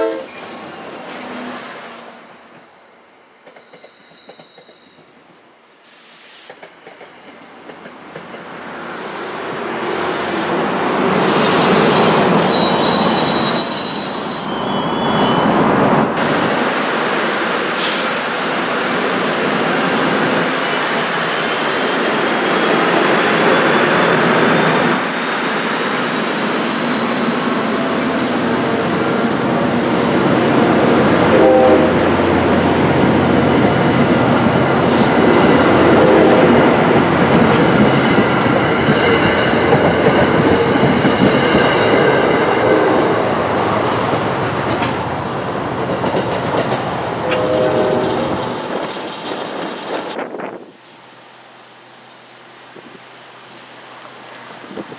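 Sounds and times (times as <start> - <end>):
train wheels clacking over rails: 3.4 - 5.4, 32.4 - 50.2.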